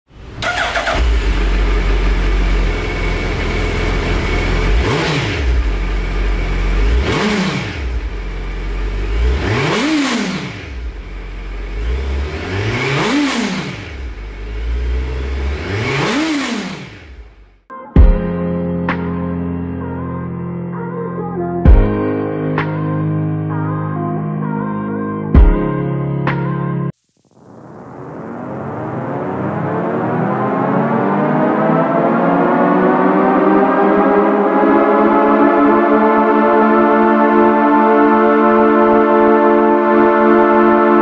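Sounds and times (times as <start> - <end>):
motorcycle engine revving: 0.3 - 17.6, 28.0 - 38.8
music: 17.7 - 27.0, 32.4 - 41.0.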